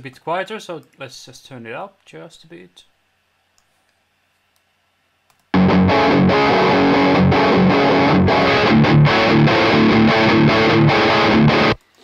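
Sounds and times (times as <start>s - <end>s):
distorted electric guitar riff: 5.5s - 11.8s.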